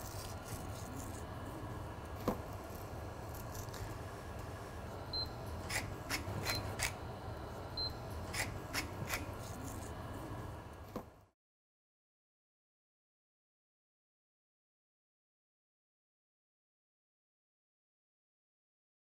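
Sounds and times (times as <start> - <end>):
low steady hum: 0.0 - 11.3.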